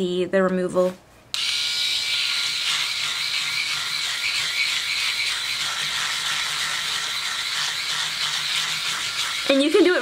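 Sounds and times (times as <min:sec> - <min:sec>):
electric hair remover whirring: 0:01.4 - 0:10.0.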